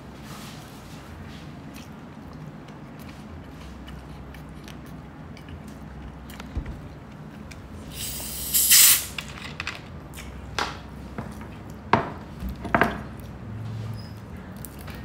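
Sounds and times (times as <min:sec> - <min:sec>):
carbonation hissing out: 0:07.9 - 0:09.2.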